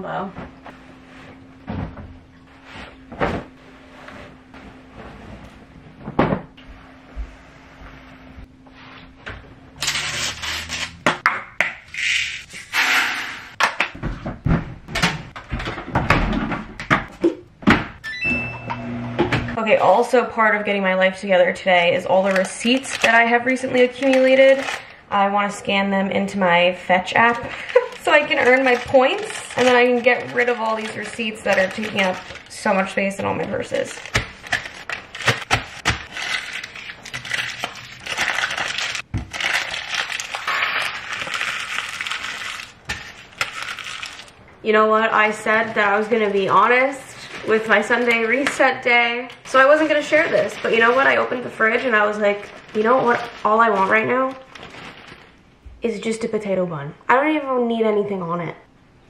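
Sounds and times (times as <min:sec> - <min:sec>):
paper crinkling and rustling: 0:22.1 - 0:25.0, 0:27.2 - 0:44.4, 0:49.5 - 0:55.4.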